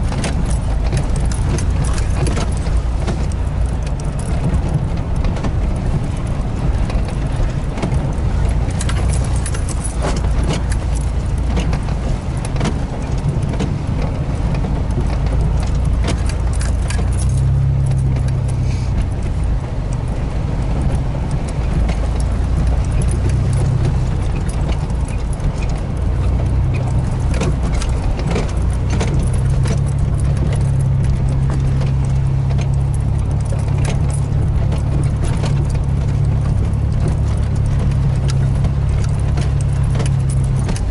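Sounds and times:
cab knocks and rattles: 0.0s - 40.9s
vehicle engine droning: 0.0s - 40.9s.

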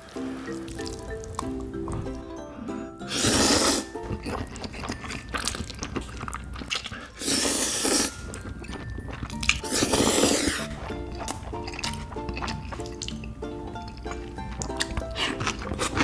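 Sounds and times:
wet chewing: 0.0s - 16.0s
noodles slurped loudly: 3.1s - 5.0s, 7.0s - 8.4s, 9.5s - 13.2s.

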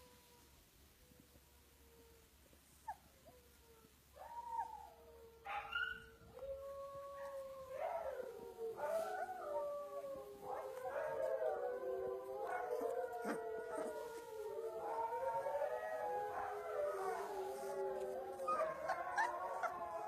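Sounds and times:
puppy howling: 5.8s - 20.0s.

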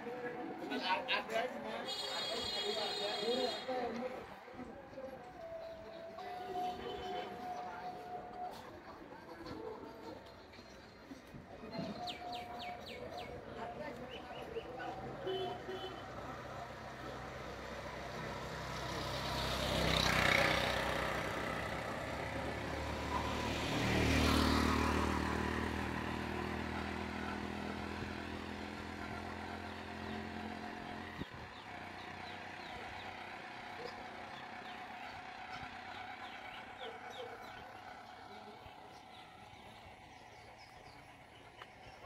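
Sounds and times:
street ambience: 0.0s - 42.0s
vehicles passing close by: 0.0s - 42.0s
engine low hum: 12.9s - 42.0s.

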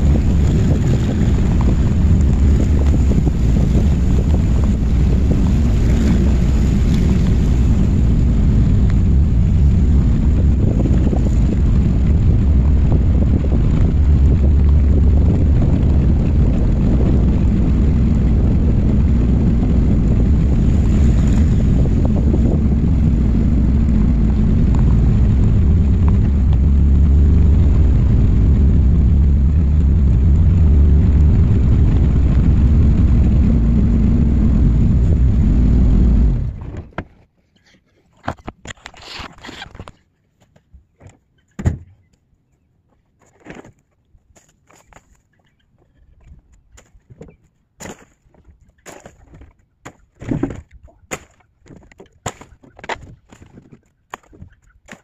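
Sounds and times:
truck engine low rumble: 0.0s - 37.0s
wind buffeting microphone: 0.0s - 37.0s.

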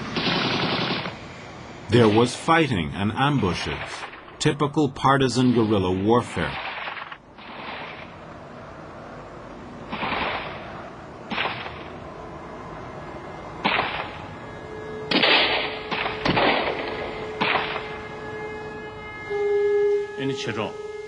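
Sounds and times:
gunshots echoing: 0.2s - 1.2s, 6.5s - 8.2s, 9.9s - 12.0s, 13.6s - 14.2s, 15.1s - 17.9s.

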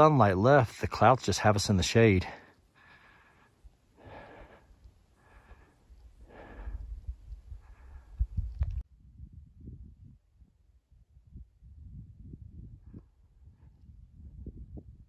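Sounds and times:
person breathing hard: 2.4s - 8.6s
wind rumble on microphone: 6.0s - 15.0s.

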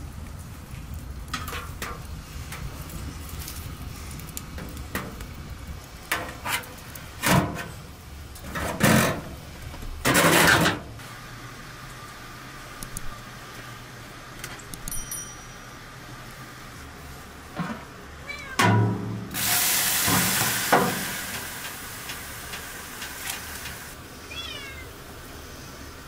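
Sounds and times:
wood fire rumbling and crackling: 0.0s - 26.0s
metal stove door scraping shut: 6.1s - 7.8s, 8.4s - 9.4s, 10.0s - 10.9s
poker clanking and scraping metal: 10.0s - 10.9s.

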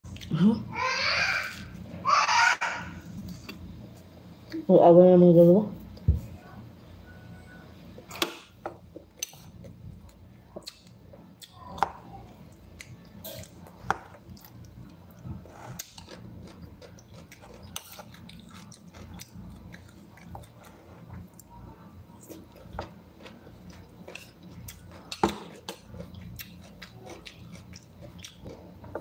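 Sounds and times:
chewing and crunching vegetables: 9.0s - 29.0s.

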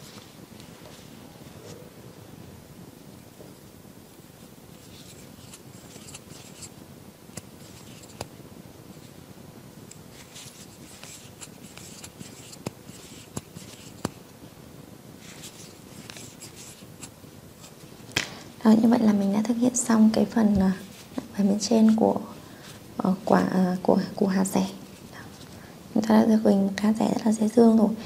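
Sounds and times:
crochet hook rustling wool yarn: 4.7s - 8.3s, 10.0s - 14.2s, 15.2s - 18.1s, 20.4s - 22.9s.

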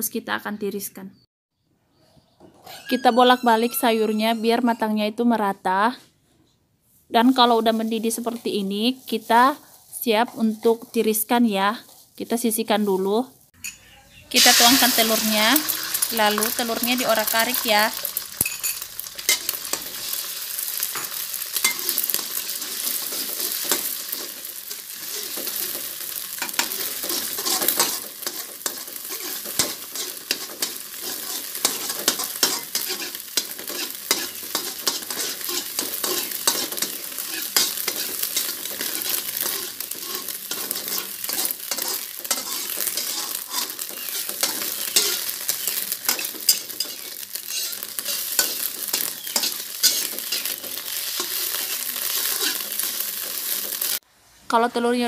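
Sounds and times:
metal utensil scraping a pan: 2.6s - 4.9s, 13.6s - 54.0s
eggs sizzling in oil: 11.9s - 54.1s.

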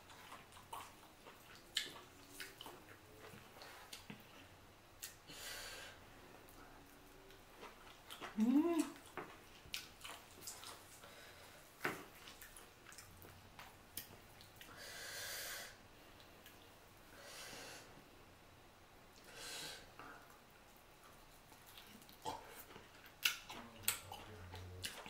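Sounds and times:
chewing and pulling chicken: 0.0s - 5.2s, 6.5s - 14.7s, 20.2s - 25.0s
loud breaths through nose: 14.7s - 15.8s, 17.1s - 18.0s, 19.2s - 19.9s.

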